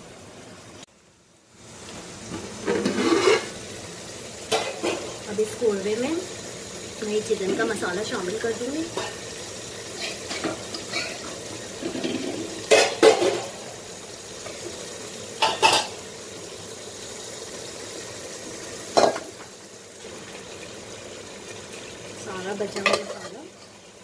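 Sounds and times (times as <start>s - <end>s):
food bubbling in a pot: 0.0s - 24.0s
food scraped into pot: 2.6s - 3.6s.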